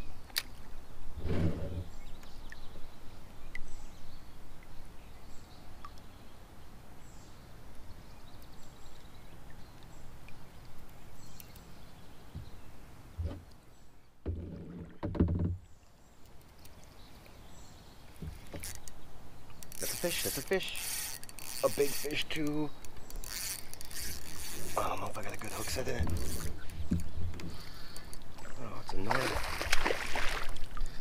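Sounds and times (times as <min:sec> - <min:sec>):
spinning reel cranking: 0:19.6 - 0:26.6.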